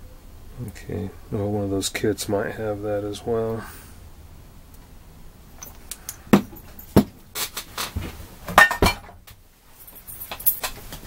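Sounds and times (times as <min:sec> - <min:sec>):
metallic ring: 0:05.6 - 0:05.9.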